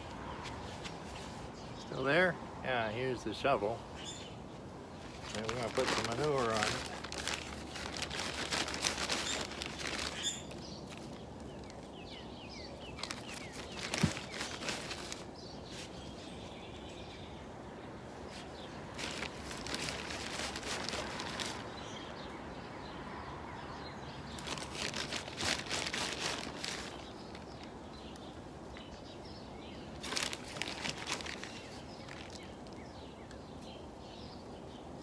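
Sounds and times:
plastic bag rustling: 5.0 - 11.8, 12.8 - 16.0, 18.3 - 21.8, 24.3 - 27.7, 29.9 - 32.8.

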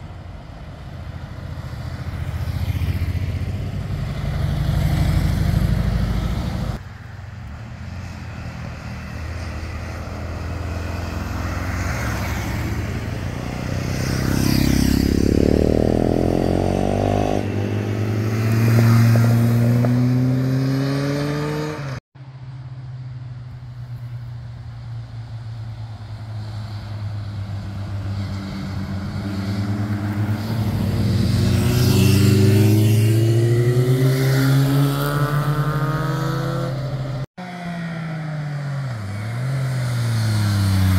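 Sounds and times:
motorcycles riding past: 0.4 - 22.0, 23.8 - 40.9
motorcycle engine accelerating: 8.8 - 22.0, 28.0 - 40.9.

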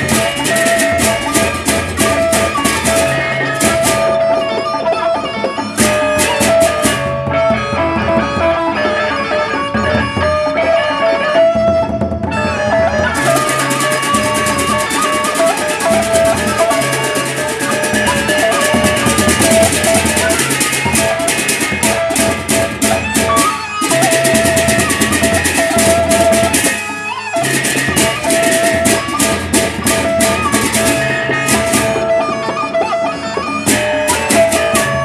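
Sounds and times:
barrel drums beaten with mallets: 0.0 - 4.5, 5.8 - 8.4, 11.6 - 32.6, 33.4 - 35.0
held melodic line: 0.0 - 35.0.

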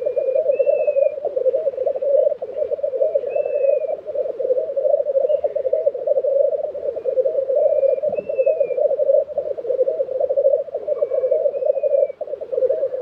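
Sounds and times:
grouse bubbling song: 0.0 - 13.0.

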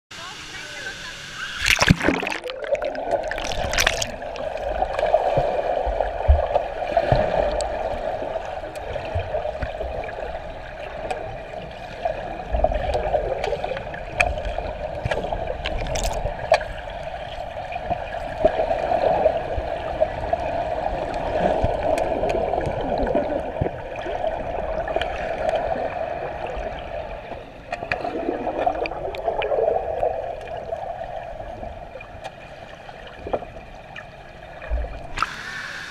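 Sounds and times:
muffled underwater water rush: 1.0 - 35.9
water splashing: 1.4 - 10.3, 12.6 - 17.5
bubbly clicks and knocks: 1.6 - 4.6, 15.1 - 16.6.

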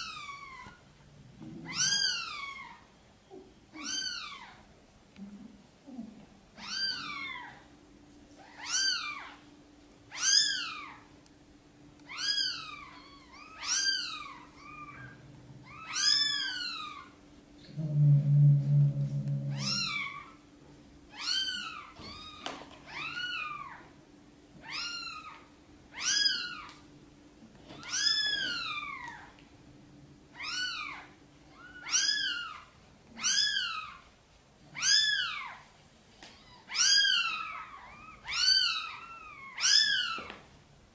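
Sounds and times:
kitten crying: 0.0 - 0.8, 1.6 - 2.8, 3.8 - 4.6, 6.6 - 7.6, 8.4 - 9.4, 10.1 - 11.1, 12.1 - 17.2, 19.5 - 20.4, 21.1 - 23.9, 24.6 - 26.8, 27.8 - 29.3, 30.4 - 34.1, 34.7 - 35.6, 36.3 - 40.3
low-pitched sound: 17.6 - 20.0.

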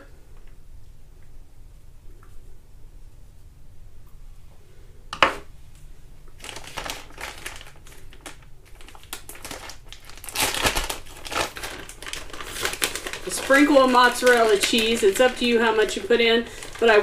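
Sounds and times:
plastic bag crinkling: 6.4 - 17.0.

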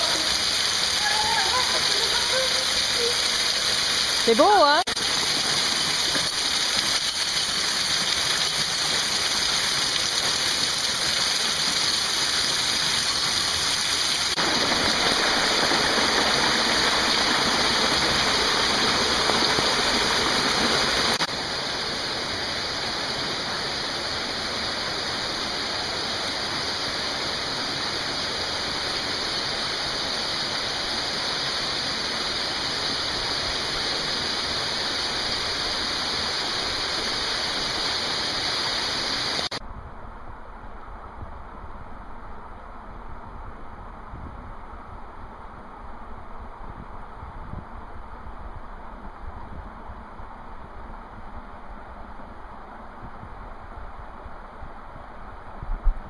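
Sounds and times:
mountain stream rushing: 0.0 - 39.6
small waterfalls: 0.0 - 39.6.

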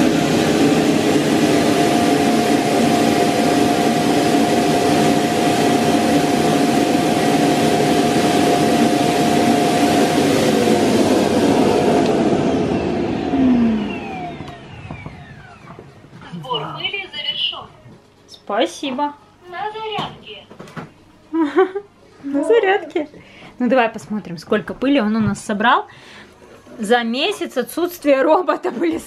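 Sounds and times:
vacuum dock suction motor whoosh: 0.0 - 15.8.

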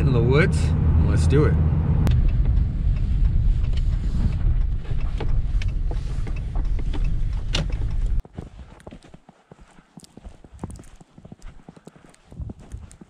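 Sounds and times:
truck cab road rumble: 0.0 - 8.2
footsteps crunching in snow: 3.8 - 13.0.

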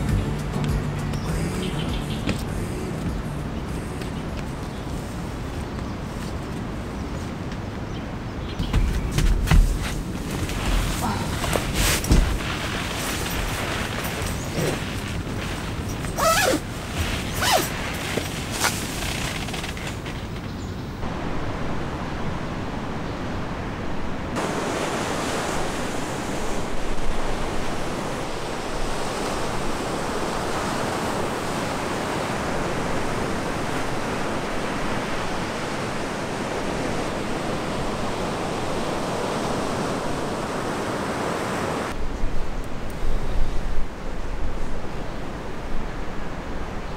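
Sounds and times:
wind: 0.0 - 46.9
ocean surf breaking on sand: 9.6 - 19.0, 21.0 - 42.0.

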